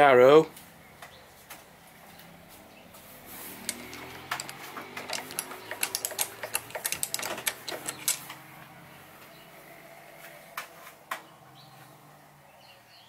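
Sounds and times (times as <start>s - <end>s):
rapid mechanical clicking: 3.6s - 8.3s.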